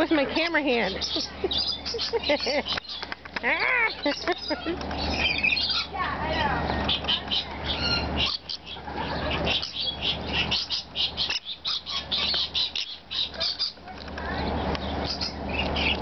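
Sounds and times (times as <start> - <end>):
lorikeets chirping and screeching: 0.0 - 16.0.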